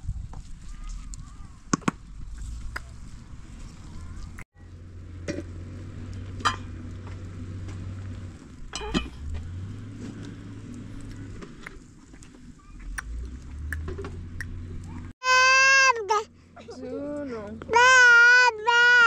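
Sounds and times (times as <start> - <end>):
cooking pot and utensils clinking: 8.8 - 9.3.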